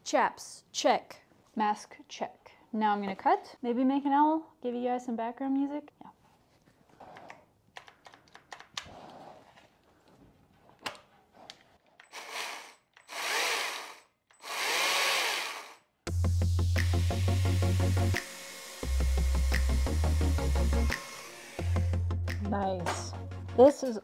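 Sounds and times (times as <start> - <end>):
electric chainsaw bursts: 12.1 - 15.8, 16.8 - 22.0
electronic music with heavy beat: 16.1 - 18.3.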